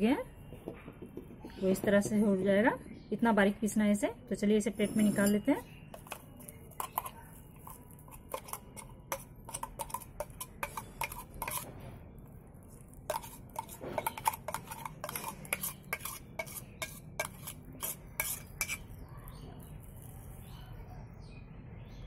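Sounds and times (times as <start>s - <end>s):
steel spoon scraping a metal jar: 4.8s - 11.8s, 12.8s - 19.0s.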